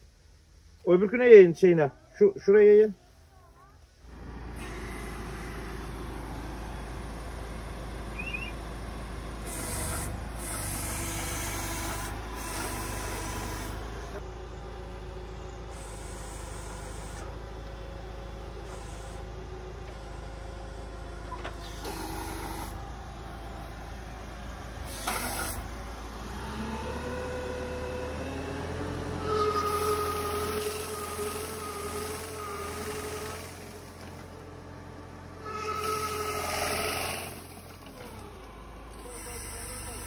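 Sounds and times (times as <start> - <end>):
tractor engine running: 4.0 - 40.0
hydraulic hissing bursts: 24.8 - 25.7.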